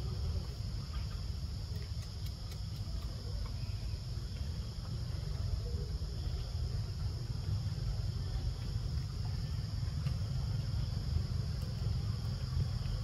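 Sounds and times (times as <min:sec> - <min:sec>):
faint clicks: 0:01.7 - 0:05.0.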